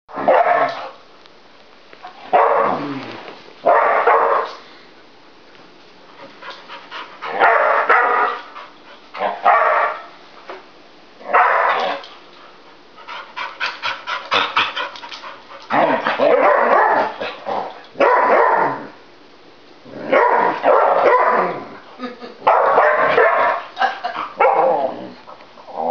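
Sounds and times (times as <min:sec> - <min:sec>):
dogs barking: 0:00.1 - 0:01.0, 0:02.3 - 0:02.8, 0:03.6 - 0:04.6, 0:07.3 - 0:08.5, 0:09.2 - 0:10.2, 0:11.3 - 0:12.0, 0:15.7 - 0:18.9, 0:20.1 - 0:21.6, 0:22.4 - 0:24.9.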